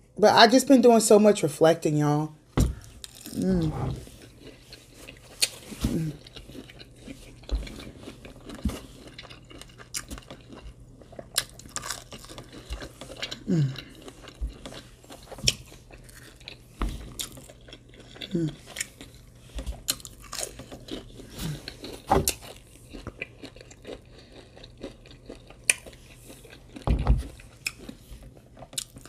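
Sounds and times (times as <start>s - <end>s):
crunchy bites and chewing: 2.7s - 3.5s, 4.1s - 29.0s
person humming mm: 3.4s - 4.0s, 13.5s - 13.9s, 18.3s - 18.6s.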